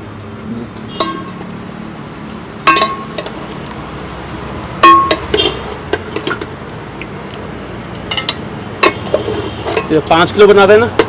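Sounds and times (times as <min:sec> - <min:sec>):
metal ladle clinking on pot: 0:01.0 - 0:01.4, 0:02.6 - 0:03.4, 0:04.8 - 0:06.5, 0:08.0 - 0:10.0.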